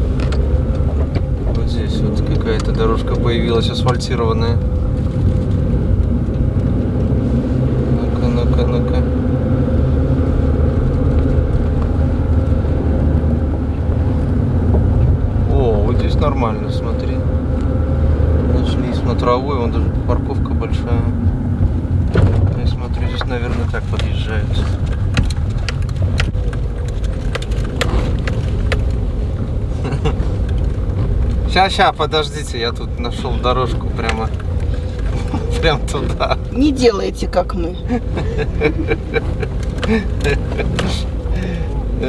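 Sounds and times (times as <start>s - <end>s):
car engine and road noise: 0.0s - 42.0s.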